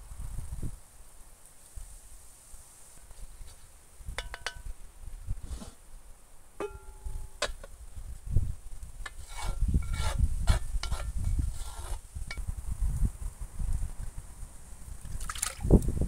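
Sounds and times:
wooden spoon scraping in wok: 5.4s - 5.8s, 9.1s - 12.1s.

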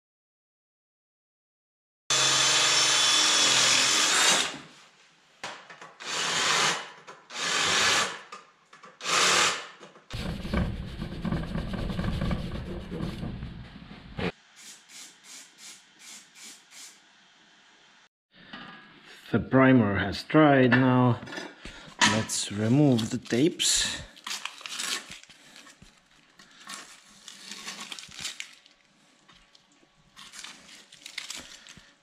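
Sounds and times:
cordless drill drilling steel: 2.1s - 4.6s, 6.0s - 8.2s, 9.0s - 9.7s
aerosol can hissing: 14.6s - 17.0s.

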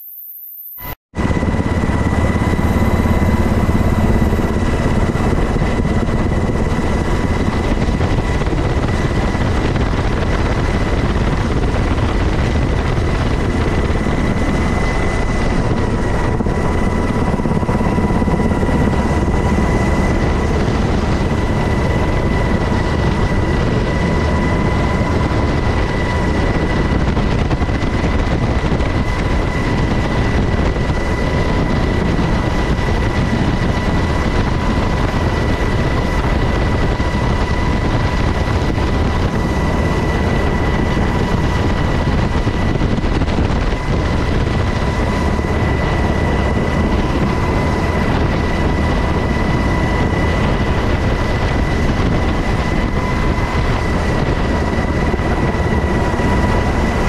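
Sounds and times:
constant high whine: 0.0s - 57.0s
helicopter rotor and engine rumble: 0.8s - 57.0s.

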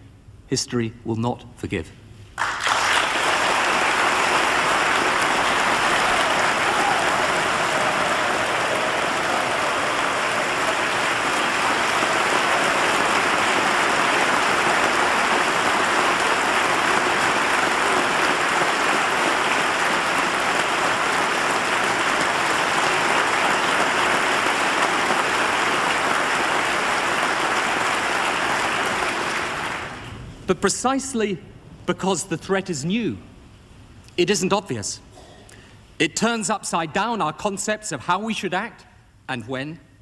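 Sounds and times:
crowd applauding: 2.4s - 30.2s.

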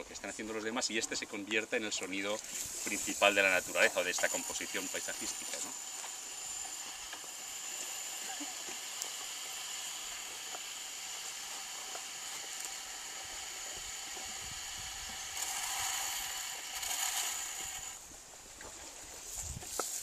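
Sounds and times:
wire instrument hissing drone: 2.4s - 18.0s.

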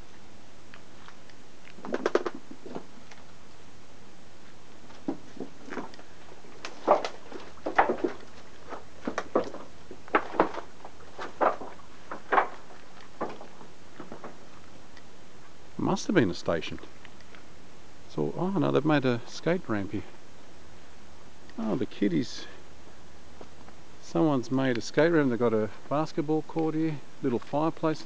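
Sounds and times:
footsteps on leaf litter: 5.0s - 14.3s.

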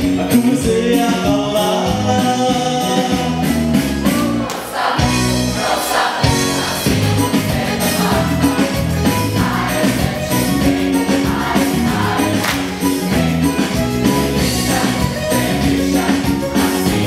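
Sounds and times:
music with steady beat: 0.0s - 17.0s
choir singing: 4.2s - 17.0s
people clapping along: 4.4s - 5.0s, 5.6s - 8.8s, 9.4s - 17.0s.

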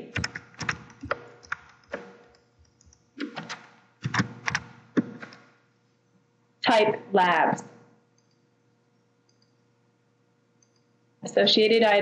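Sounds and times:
computer keyboard typing: 0.0s - 5.4s, 8.2s - 8.4s, 9.3s - 9.6s.

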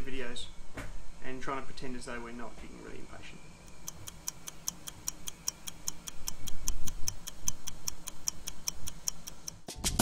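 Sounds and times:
rapid even ticking: 3.6s - 10.0s.

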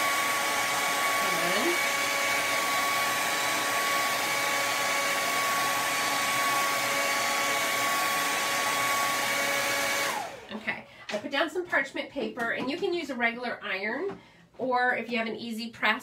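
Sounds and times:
hair dryer running: 0.0s - 10.6s.

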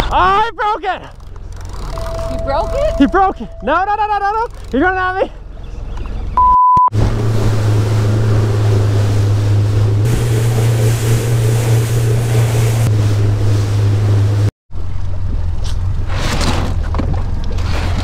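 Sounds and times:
motorboat engine drone: 1.5s - 6.4s, 7.0s - 14.5s
short electronic beep: 1.9s - 4.3s, 6.4s - 6.9s
water rushing: 7.0s - 14.5s.

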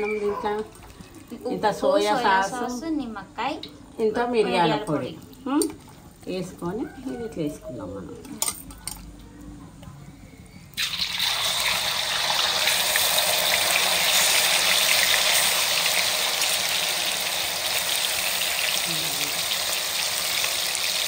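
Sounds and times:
deep-frying crackling sizzle: 10.7s - 21.0s.

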